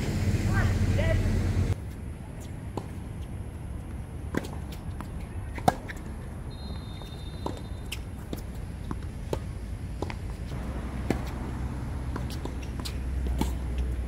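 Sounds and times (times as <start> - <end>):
low rumble: 0.0 - 1.8
tennis ball bouncing: 3.9 - 6.2, 7.0 - 14.0
racket strings striking tennis ball: 10.0 - 13.6.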